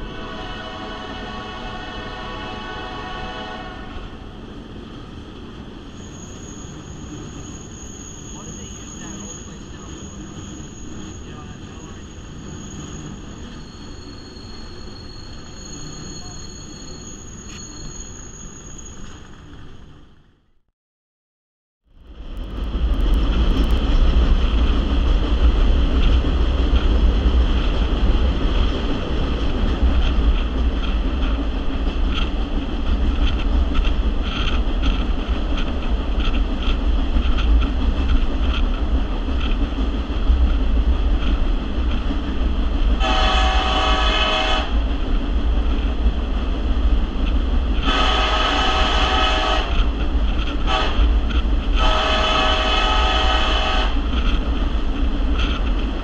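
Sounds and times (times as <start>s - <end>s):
locomotive air horn blasts: 0.0s - 4.0s, 43.0s - 44.8s, 47.8s - 49.8s, 50.6s - 51.1s, 51.8s - 54.0s
train rumbling along: 0.0s - 20.4s, 21.9s - 56.0s
wind buffeting: 22.1s - 43.7s, 44.6s - 56.0s.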